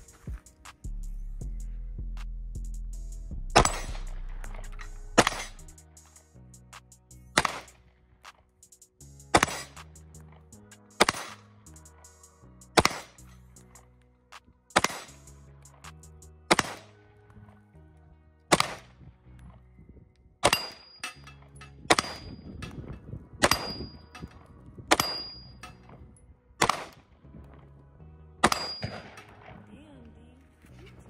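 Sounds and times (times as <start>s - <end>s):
pistol shots: 3.6s - 4.0s, 7.4s - 7.8s, 9.4s - 9.8s, 11.0s - 11.5s, 12.8s - 13.2s, 14.7s - 15.2s, 16.5s - 16.9s, 18.5s - 18.8s, 20.4s - 21.2s, 21.9s - 22.3s, 23.4s - 24.3s, 26.6s - 27.0s, 28.4s - 29.5s
bullet pinging steel target: 3.6s - 5.8s, 7.4s - 7.8s, 11.0s - 11.5s, 12.8s - 13.3s, 14.7s - 15.2s, 16.5s - 16.9s, 18.5s - 18.9s, 20.4s - 26.0s, 26.6s - 27.0s, 28.4s - 29.4s.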